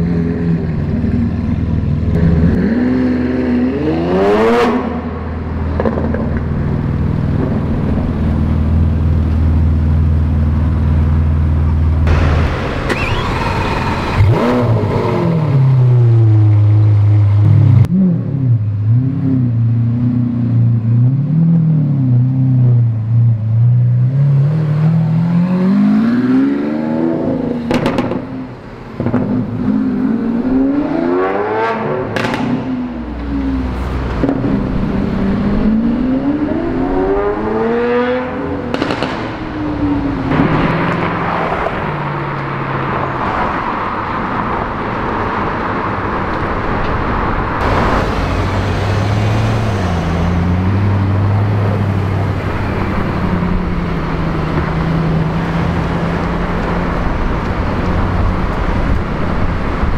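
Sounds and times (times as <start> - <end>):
exhaust cracks: 12.0 - 15.5, 38.7 - 39.6, 46.2 - 54.8
rushing noise: 12.0 - 16.4, 44.6 - 54.8
car engine revving: 12.0 - 20.4, 45.3 - 59.9.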